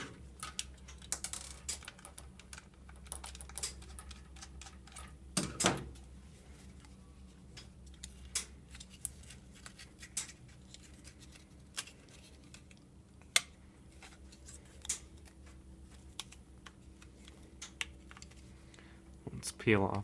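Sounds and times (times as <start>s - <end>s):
foil tape crinkling: 7.8s - 12.9s.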